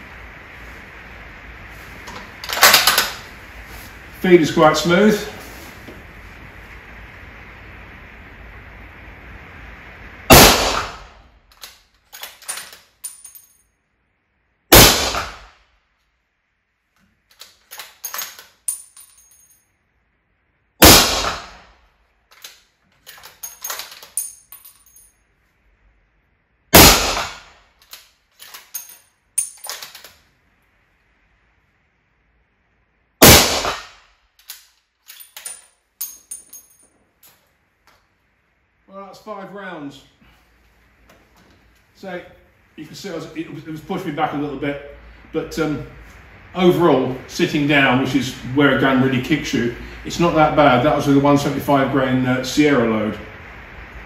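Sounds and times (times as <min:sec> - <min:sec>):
suppressed rifle shots: 0:10.3 - 0:11.2, 0:14.7 - 0:15.5, 0:20.8 - 0:21.6, 0:26.7 - 0:27.6, 0:33.2 - 0:34.0.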